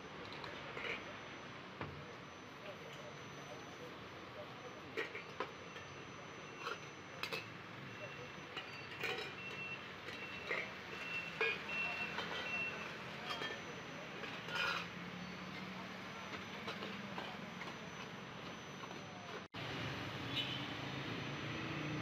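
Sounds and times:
short high-pitched beeps: 0:02.2 - 0:19.4
metal lids clinking on pots: 0:08.5 - 0:15.0.

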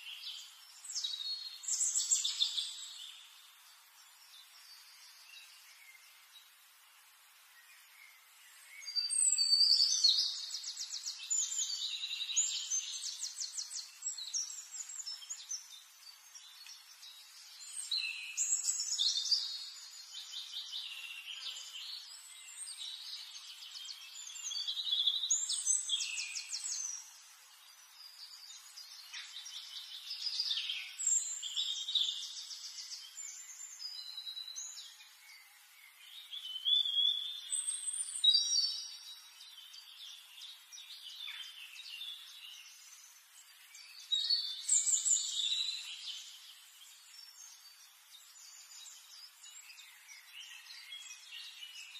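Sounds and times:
finches singing: 0:00.0 - 0:51.9.

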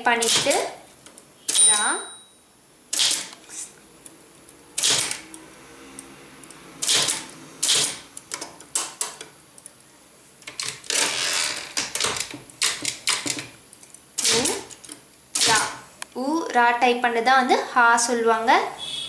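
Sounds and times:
typewriter carriage return rattle: 0:03.0 - 0:03.3, 0:04.8 - 0:05.2, 0:06.8 - 0:09.2, 0:10.5 - 0:13.5, 0:14.2 - 0:15.8.

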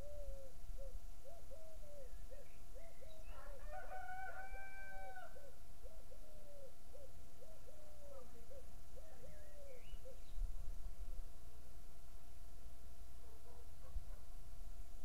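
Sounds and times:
distant rooster crowing: 0:03.2 - 0:05.5.

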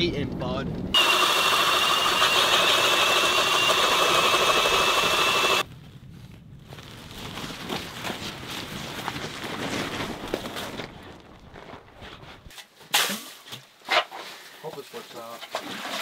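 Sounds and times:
power ice auger whining: 0:01.0 - 0:05.6.

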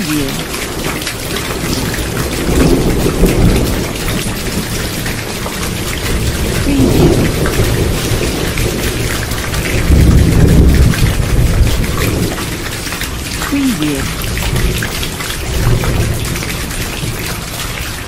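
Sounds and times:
low thunder rumbling: 0:00.0 - 0:13.4
heavy rain falling: 0:00.0 - 0:18.0.

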